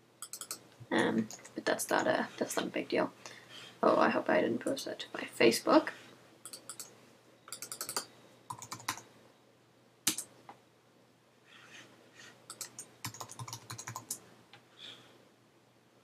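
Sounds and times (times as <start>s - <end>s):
keyboard typing: 0.2s - 0.6s, 1.2s - 2.1s, 6.4s - 6.9s, 7.5s - 9.0s, 10.1s - 10.3s, 12.5s - 14.2s.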